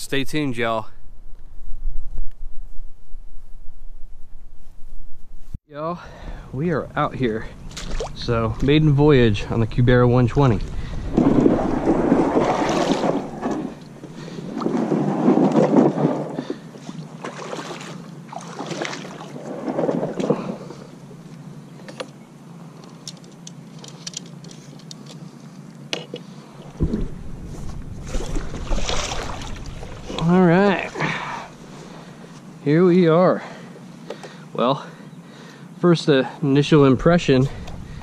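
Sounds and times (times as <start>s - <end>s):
kayak hull scraping on gravel: 11.0s - 16.6s, 18.6s - 20.7s
thump: 26.8s - 27.8s.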